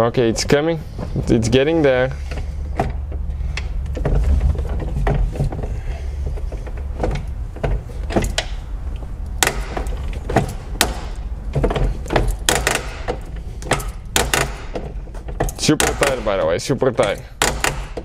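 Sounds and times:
steady low hum: 0:00.0 - 0:18.0
tool clicks and knocks: 0:09.4 - 0:16.4, 0:17.0 - 0:18.0.

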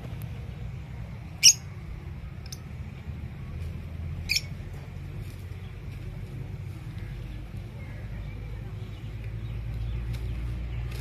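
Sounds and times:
parakeet squawks: 0:01.4 - 0:01.6.

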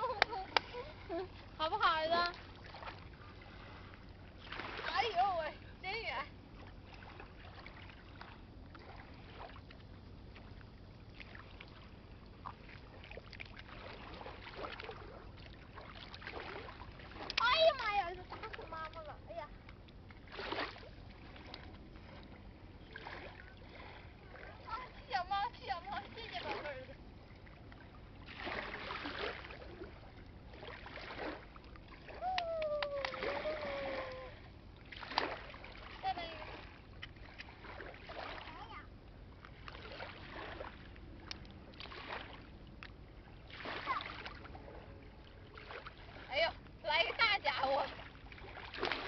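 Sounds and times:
low rumble of riverside ambience: 0:00.0 - 0:49.0
small waves splashing on bank: 0:00.0 - 0:49.0.

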